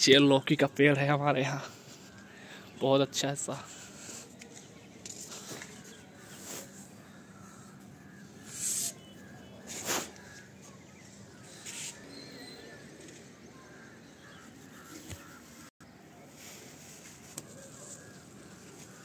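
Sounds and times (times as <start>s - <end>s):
steady outdoor background: 0.0s - 19.0s
faint bird calls: 3.6s - 19.0s
brief rustles: 9.6s - 10.5s.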